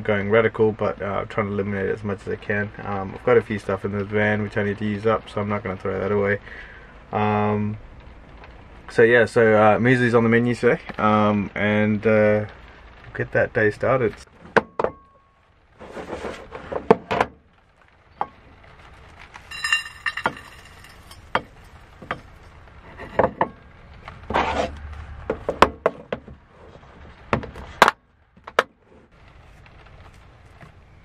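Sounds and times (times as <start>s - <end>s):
cereal pouring into a bowl: 19.4s - 21.8s.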